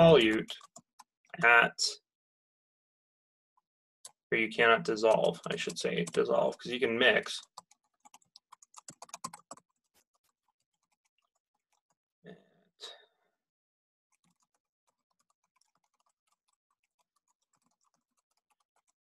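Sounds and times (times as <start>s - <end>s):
keyboard typing: 0.0s - 1.1s, 5.0s - 12.0s, 14.1s - 19.0s.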